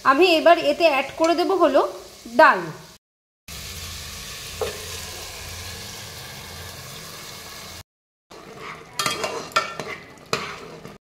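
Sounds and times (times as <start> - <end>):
food sizzling in a pan: 0.0 - 11.0
spatula scraping a pan: 8.3 - 11.0.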